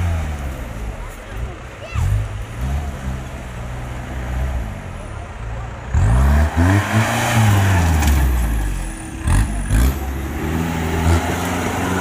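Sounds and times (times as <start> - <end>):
jeep engine revving hard: 5.8 - 8.6, 9.2 - 12.0.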